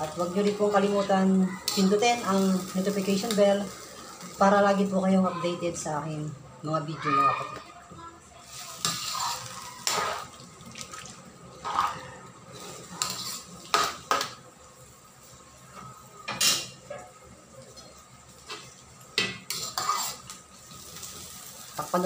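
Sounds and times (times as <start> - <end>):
metal spatula scraping a wok: 8.5 - 10.3, 11.6 - 13.8, 19.5 - 20.4.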